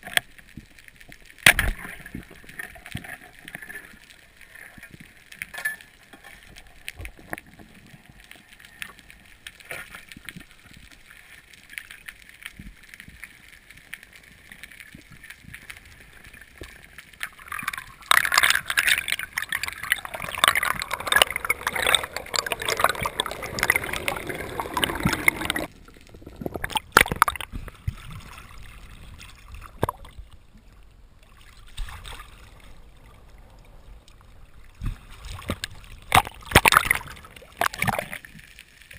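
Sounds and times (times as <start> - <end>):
faint underwater crackling and ticking: 0.0 - 38.9
water rushing and bubbling: 14.0 - 38.9.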